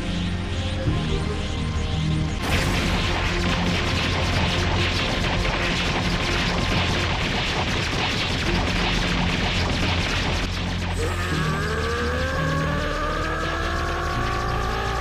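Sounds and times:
dramatic background music: 0:00.0 - 0:15.0
crashing and booming fight effects: 0:02.4 - 0:12.6
rising layered tone: 0:10.6 - 0:15.0.

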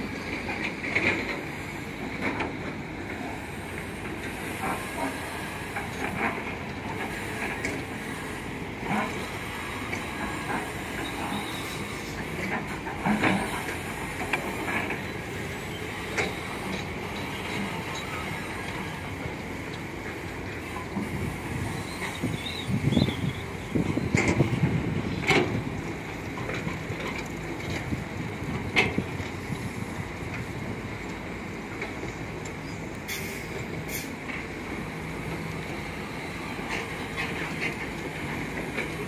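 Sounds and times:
excavator engine and hydraulic drone: 0:00.0 - 0:39.0
metallic clanks and squeals: 0:08.9 - 0:13.7, 0:14.4 - 0:19.2, 0:20.6 - 0:24.4.

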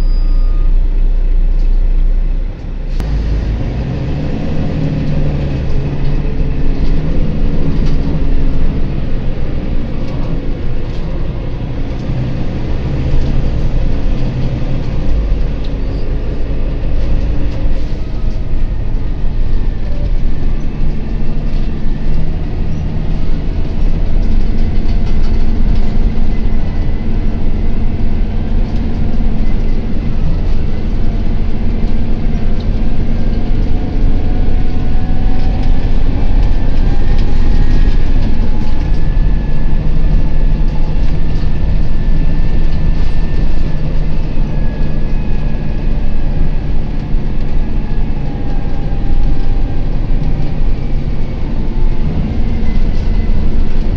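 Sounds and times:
bus diesel engine drone: 0:00.0 - 0:53.9
road rumble: 0:00.0 - 0:53.9.

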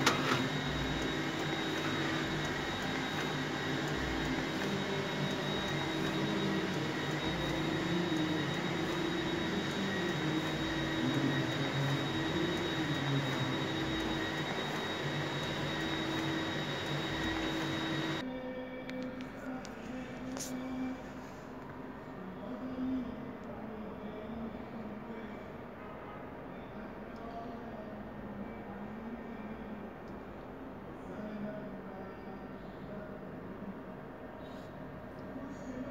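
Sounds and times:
printer humming and whirring: 0:00.0 - 0:18.3
thin high whine: 0:00.0 - 0:18.8.

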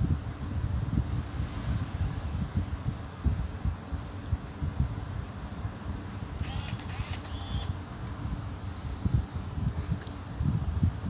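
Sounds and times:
camera zoom motor whirring: 0:06.4 - 0:07.8.

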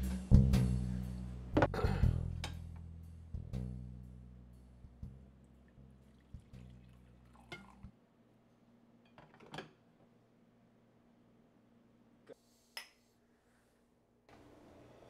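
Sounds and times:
glass and ceramic mugs clinking: 0:07.3 - 0:07.8.

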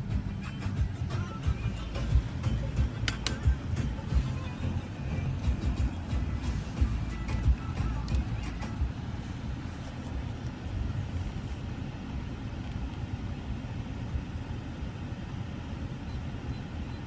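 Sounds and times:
car engine rumble from inside: 0:00.0 - 0:17.0.

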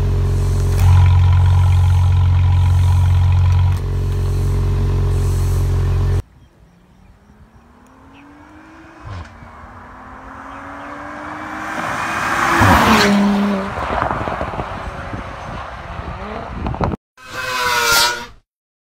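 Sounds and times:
car accelerating and passing: 0:07.2 - 0:17.9.

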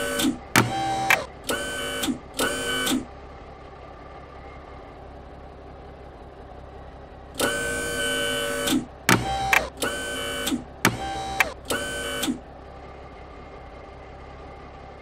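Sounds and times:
cartoon mechanical whirring: 0:00.0 - 0:03.1, 0:07.4 - 0:12.4.

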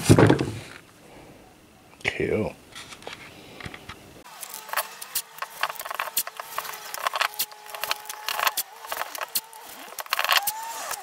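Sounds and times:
tape crackling and ripping: 0:04.3 - 0:11.0.

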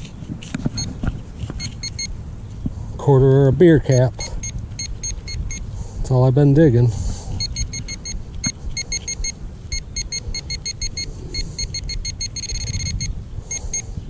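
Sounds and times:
soil and grass rustling: 0:00.0 - 0:07.4
pinpointer short electronic beeps: 0:01.6 - 0:02.2, 0:03.8 - 0:05.7, 0:07.4 - 0:13.9.

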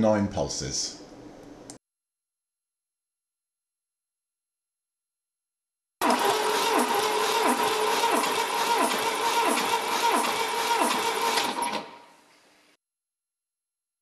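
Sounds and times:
starter motor cranking engine: 0:06.0 - 0:12.1.

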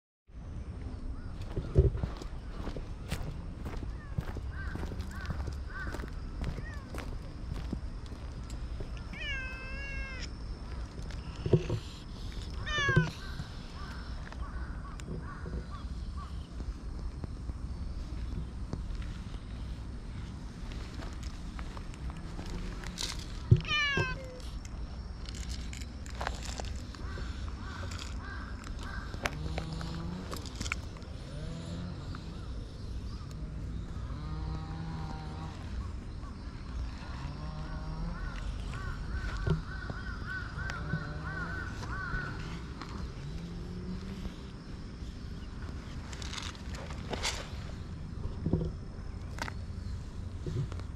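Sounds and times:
low outdoor rumble: 0:00.3 - 0:50.9
crow cawing: 0:04.0 - 0:06.8, 0:12.6 - 0:16.4, 0:27.0 - 0:29.9, 0:38.1 - 0:43.0
cat meowing: 0:09.1 - 0:10.3, 0:12.7 - 0:13.1, 0:23.6 - 0:24.4.

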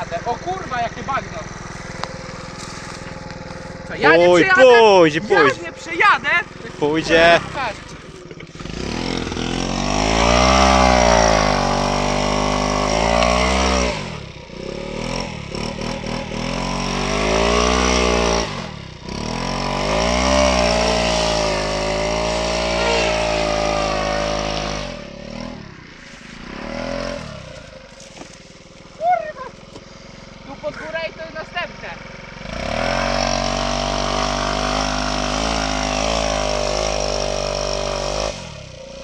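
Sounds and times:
scooter engine revving: 0:00.0 - 0:39.0.

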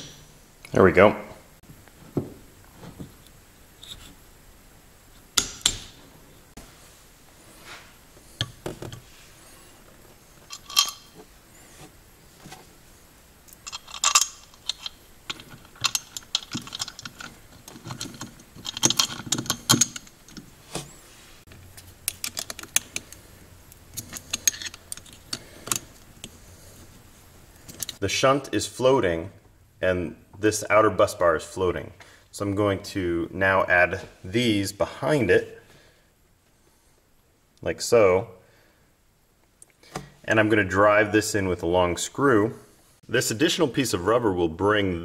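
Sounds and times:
metal hardware clinking and rattling: 0:10.4 - 0:11.3, 0:13.5 - 0:20.6, 0:21.7 - 0:23.2, 0:23.9 - 0:26.7, 0:27.6 - 0:28.0.

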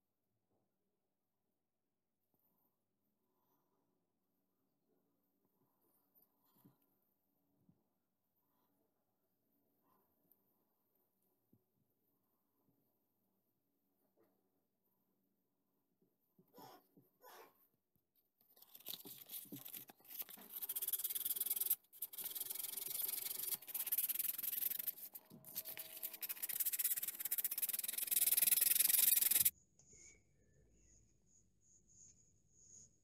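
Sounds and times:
hand sanding wood: 0:19.3 - 0:29.5.

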